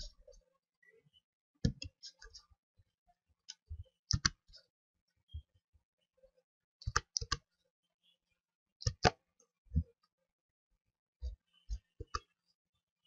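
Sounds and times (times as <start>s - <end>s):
computer mouse clicking: 3.5s - 4.4s, 6.8s - 7.4s, 8.8s - 9.2s.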